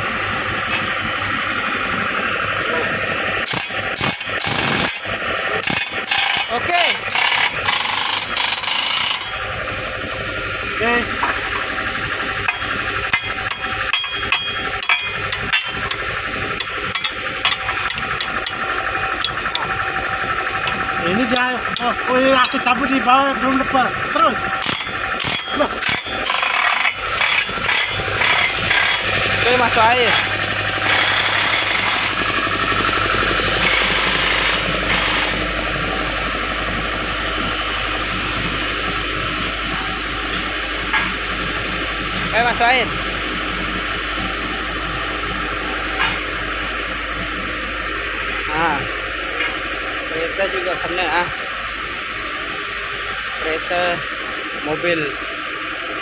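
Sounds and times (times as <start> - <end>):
air compressor chugging: 0.0 - 56.0
steady machine hum: 0.0 - 56.0
hammer striking chisel on steel: 12.5 - 16.0, 16.6 - 18.6
loud air hissing: 22.1 - 38.9.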